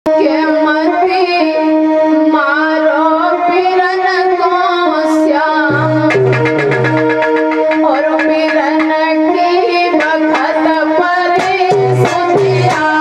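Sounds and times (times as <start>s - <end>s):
woman singing devotional song: 0.1s - 5.8s, 7.8s - 13.0s
drum strikes: 5.7s - 9.3s, 10.0s - 13.0s
held instrumental notes: 5.7s - 13.0s.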